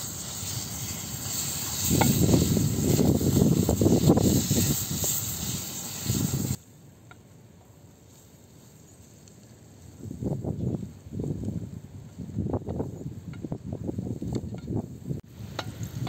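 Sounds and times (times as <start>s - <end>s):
noodles sizzling in a pan: 0.0s - 6.6s
outdoor background: 0.0s - 16.0s.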